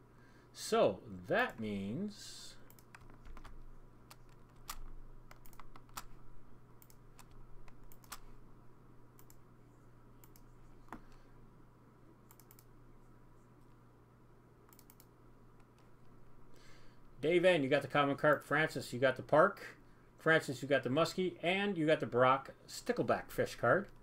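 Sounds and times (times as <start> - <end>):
steady low hum: 0.0 - 24.0
mouse clicks: 2.7 - 3.5, 9.2 - 9.4, 12.3 - 12.7, 14.7 - 15.9
keyboard keystrokes: 2.7 - 6.2, 6.8 - 8.2.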